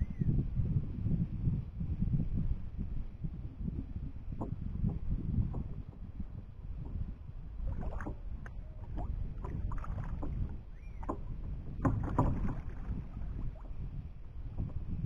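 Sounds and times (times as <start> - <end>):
low rumble: 0.0 - 15.0
paddle knocking on plastic hull: 3.6 - 13.8
paddle splashing through water: 5.4 - 13.8.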